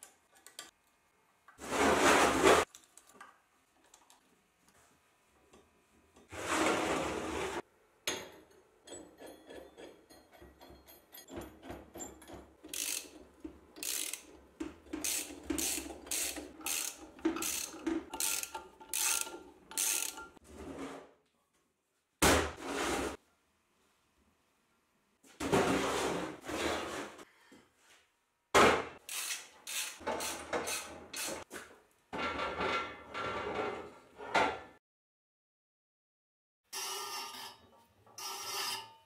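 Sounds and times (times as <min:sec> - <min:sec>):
ratchet wrench clicking: 0:12.7 - 0:13.2, 0:13.8 - 0:14.3, 0:15.0 - 0:20.2, 0:29.1 - 0:30.0.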